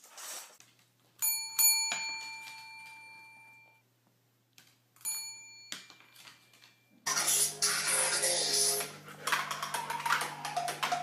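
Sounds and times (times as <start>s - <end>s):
small bell ringing: 1.2s - 3.8s, 5.0s - 6.9s.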